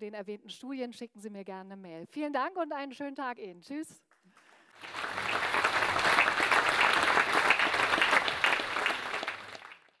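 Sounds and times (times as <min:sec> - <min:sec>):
audience applause: 0:04.7 - 0:10.0.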